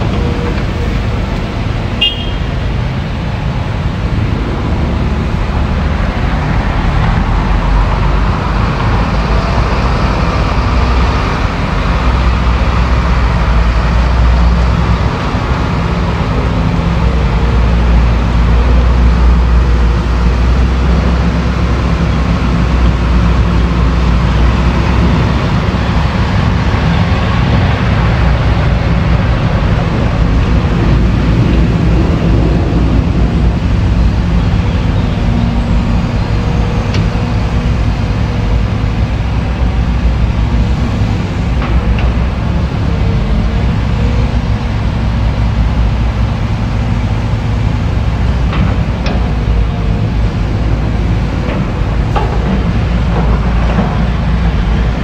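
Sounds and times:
excavator diesel engine running: 0.0 - 55.0.

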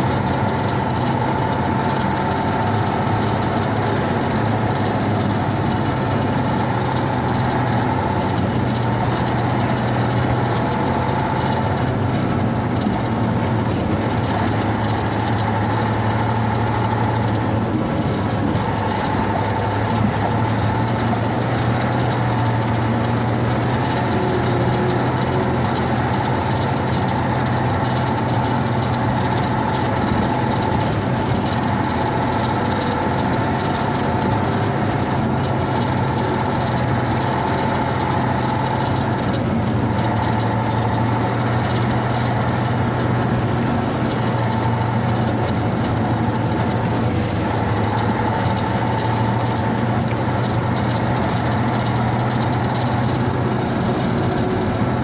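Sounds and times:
tyre and road noise: 0.0 - 55.0
vehicle engine running: 0.0 - 55.0.

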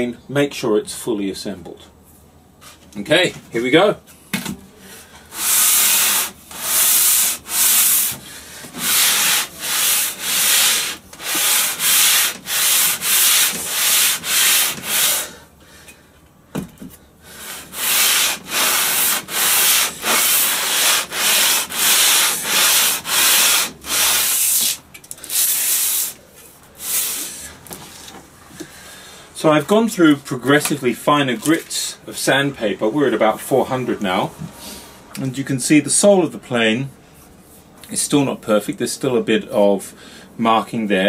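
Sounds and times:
plane sole scraping on sandpaper: 5.3 - 15.3, 17.4 - 26.2.

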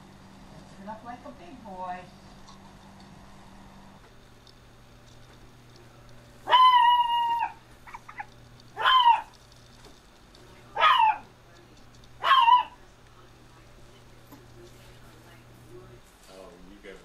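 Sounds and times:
dog high-pitched calls: 6.4 - 9.3, 10.8 - 11.2, 12.2 - 12.8.

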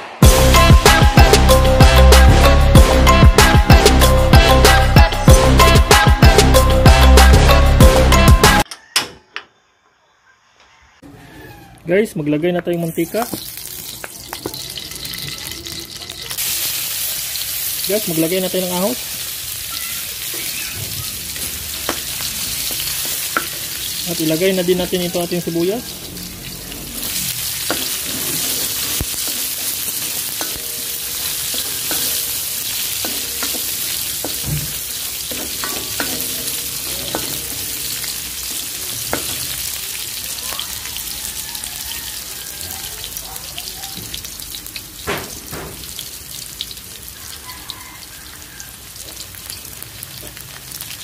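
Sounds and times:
onions sizzling in hot oil: 12.6 - 51.0.

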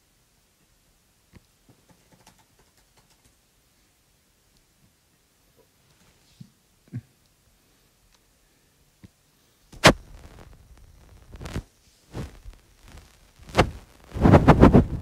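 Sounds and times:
fingers tapping on touchscreen: 1.7 - 3.3.

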